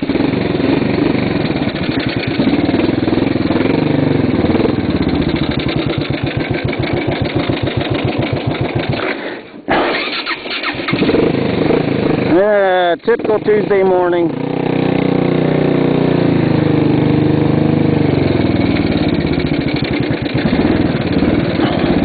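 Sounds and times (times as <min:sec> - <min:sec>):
motorcycle starter cranking: 0:01.4 - 0:03.2, 0:04.5 - 0:09.2, 0:09.8 - 0:13.7, 0:18.4 - 0:22.0.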